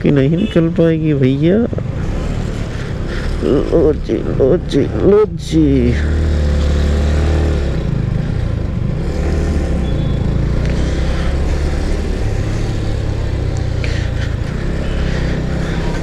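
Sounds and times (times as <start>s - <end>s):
motorcycle engine running: 1.8s - 16.0s.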